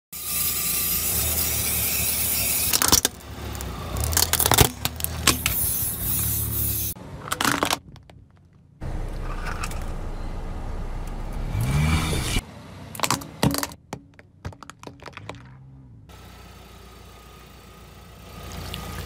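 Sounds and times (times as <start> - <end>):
plastic toy cracking and crunching: 2.6 - 5.6
low engine hum: 8.0 - 19.0.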